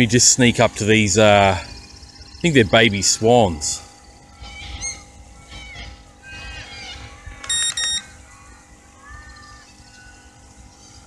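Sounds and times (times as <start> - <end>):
low steady hum: 0.0 - 11.0
faint bird chirps: 3.9 - 11.0
short electronic beeps: 7.5 - 8.1.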